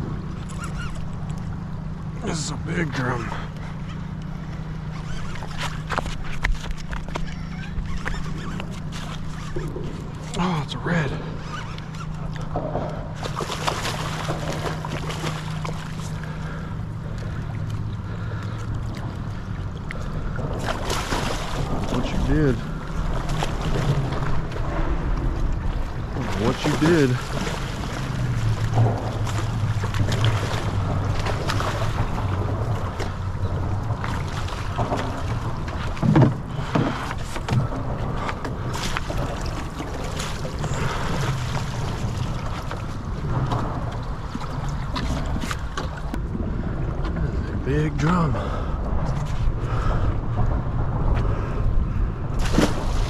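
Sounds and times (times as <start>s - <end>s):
steady low hum: 0.0s - 53.0s
water sloshing against wall: 4.9s - 46.2s, 48.1s - 53.0s
fish splashing and thumping: 5.0s - 47.4s, 52.4s - 53.0s
fish splashing at water surface: 12.9s - 19.0s, 19.9s - 24.6s, 25.8s - 35.9s, 52.4s - 53.0s
wind on microphone: 48.3s - 53.0s.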